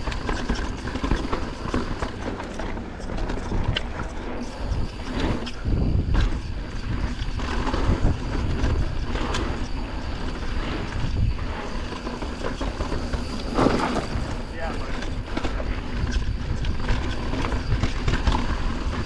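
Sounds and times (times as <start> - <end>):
bike knocking and rattling: 0.0 - 19.0
bike tyres rumbling on dirt: 0.0 - 19.0.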